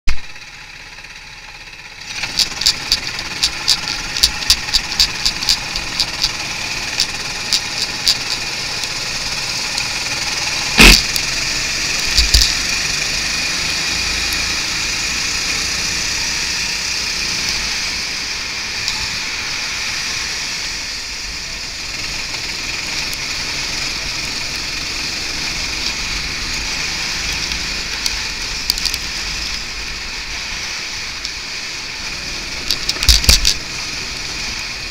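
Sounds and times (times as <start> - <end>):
go-kart engine running: 0.1 - 34.9
loud bang: 10.6 - 11.4
sharp knocks: 10.8 - 11.4.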